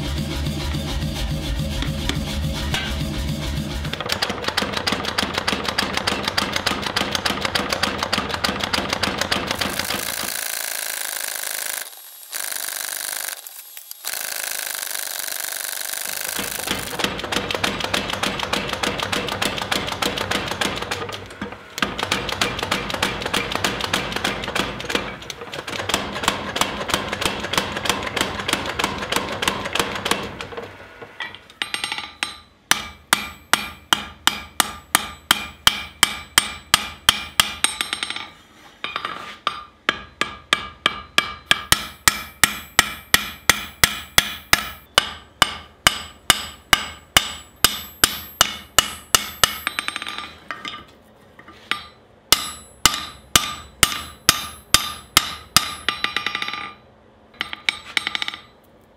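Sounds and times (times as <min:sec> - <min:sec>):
power hammer pounding steel: 0:03.8 - 0:30.6, 0:31.6 - 0:38.2, 0:39.5 - 0:50.3, 0:51.7 - 0:56.7
hand hammer ringing on anvil: 0:31.6 - 0:38.3, 0:39.5 - 0:50.4, 0:51.7 - 0:56.8.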